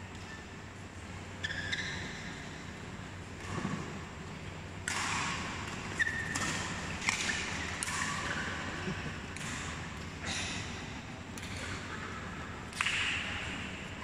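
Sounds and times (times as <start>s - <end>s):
shoe squeaking on court floor: 1.4s - 2.6s, 6.0s - 7.4s
rackets hitting shuttlecock: 4.8s - 8.7s.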